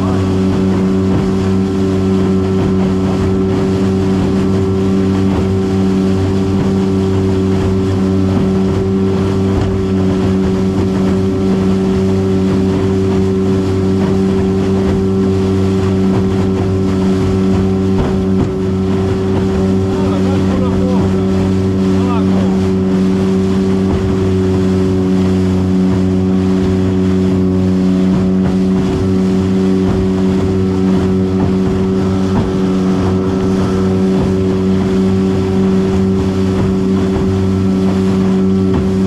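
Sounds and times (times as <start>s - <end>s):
motorboat engine running: 0.0s - 39.0s
water splashing against hull: 0.0s - 39.0s.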